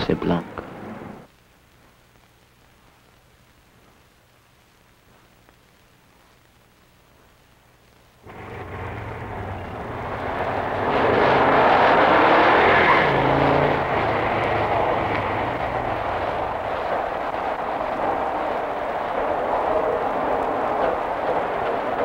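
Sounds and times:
car engine passing: 8.3 - 22.0
street traffic din: 8.3 - 22.0.

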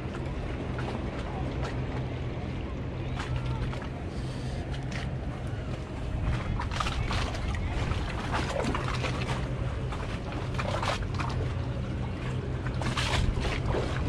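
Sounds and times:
moving water: 0.0 - 14.0
wind on microphone: 5.2 - 10.4, 12.0 - 14.0.

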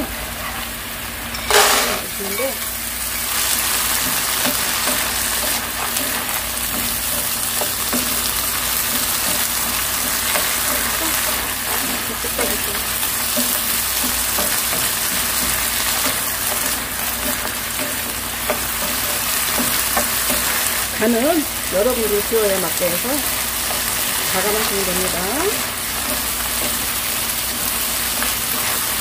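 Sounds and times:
food sizzling in a frying pan: 0.0 - 29.0
wooden spatulas stirring: 3.2 - 29.0.

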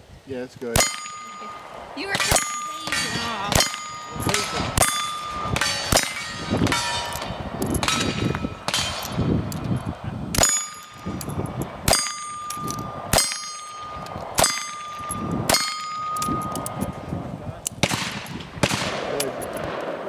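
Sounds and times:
steel plate ringing clang: 0.8 - 9.5, 10.4 - 16.8
revolver shots: 0.8 - 15.8.

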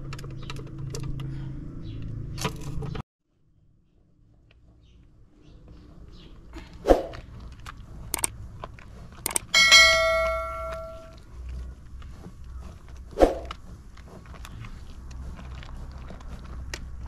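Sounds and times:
bright bell ding: 9.6 - 11.2.

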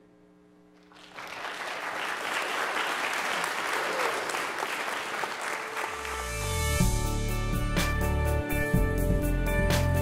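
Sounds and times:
audience applauding: 0.9 - 6.6.

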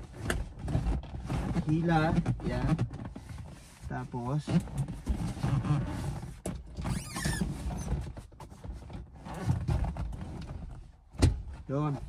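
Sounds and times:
clothing rustle: 0.0 - 6.4
leather upholstery scraping and creaking: 0.0 - 12.0.

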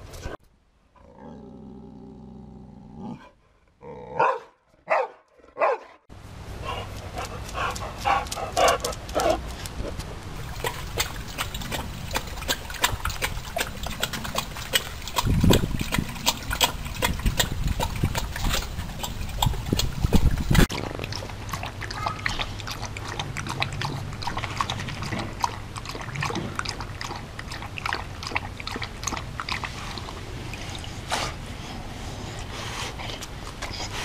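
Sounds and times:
dog grumbling low: 1.0 - 3.2
dog barking: 4.2 - 6.0.

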